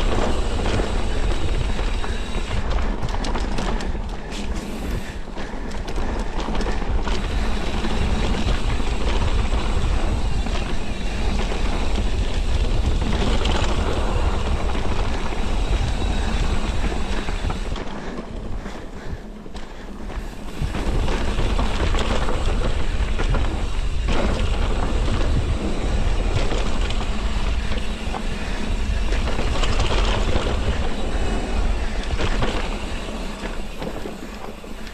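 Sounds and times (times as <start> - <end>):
bike rattling over bumps: 0.0 - 34.9
bike tyres rolling on dirt: 0.0 - 34.9
wind on microphone: 6.0 - 19.2, 20.3 - 34.9.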